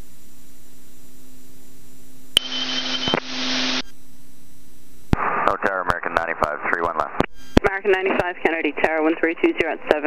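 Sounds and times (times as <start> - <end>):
intercom tonal hum: 2.4 - 3.9.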